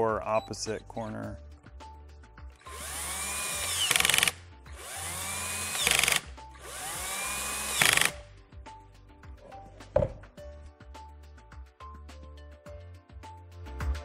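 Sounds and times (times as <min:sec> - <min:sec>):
cordless drill driving screws: 0:02.6 - 0:08.2.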